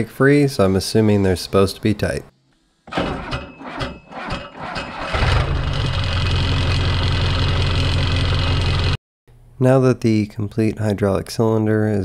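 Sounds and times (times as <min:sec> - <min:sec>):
diesel engine cranking and idling: 0:02.9 - 0:09.0.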